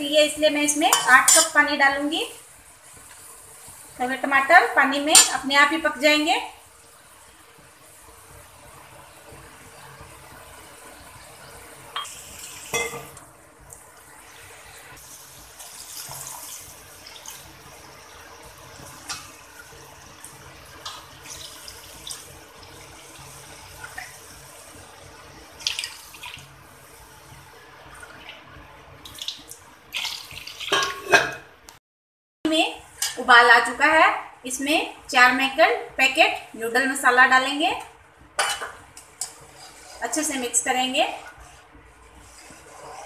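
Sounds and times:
water pouring into pan: 13.7 - 31.1
metal spatula scraping pan: 39.2 - 41.6, 42.2 - 43.0.

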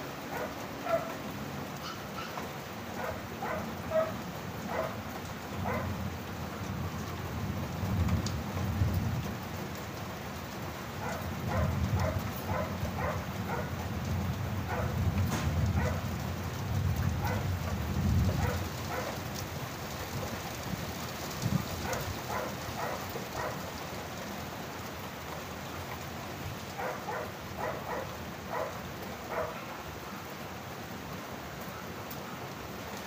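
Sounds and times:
steady rain falling: 0.0 - 33.0
low thunder rumble: 5.5 - 9.7, 11.0 - 23.5.

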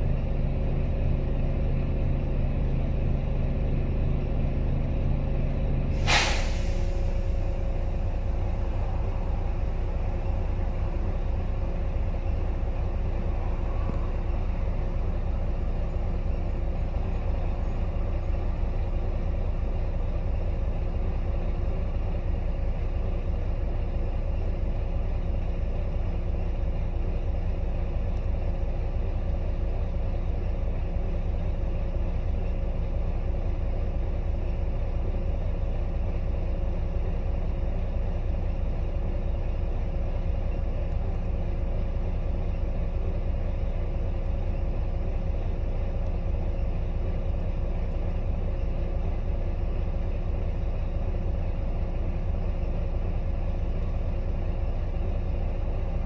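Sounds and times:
diesel bus engine idling: 0.0 - 56.0
air brake hiss: 6.0 - 9.3
steady hum: 7.1 - 21.2.

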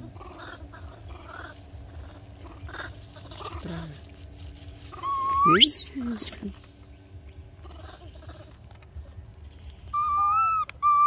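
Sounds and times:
macaque calling: 5.0 - 6.3, 10.0 - 11.0
macaque squeal: 5.0 - 6.3, 9.9 - 11.0.

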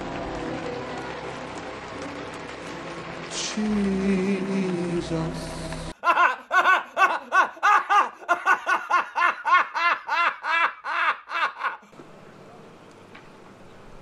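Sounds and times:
man laughing hard: 6.0 - 11.9.

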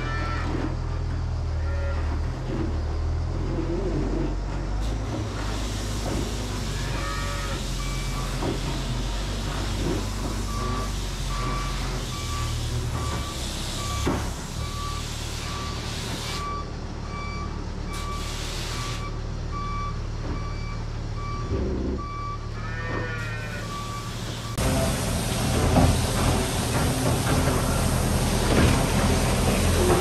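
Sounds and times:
diesel engine running: 0.0 - 30.0
reversing alarm beeping: 6.9 - 24.7.

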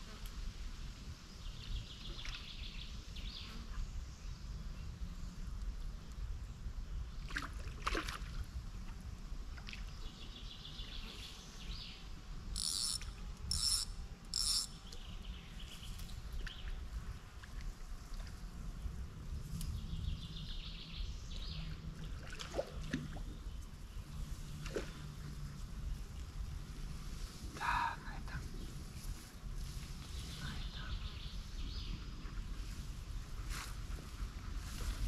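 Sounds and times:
birds chirping: 30.1 - 32.2.

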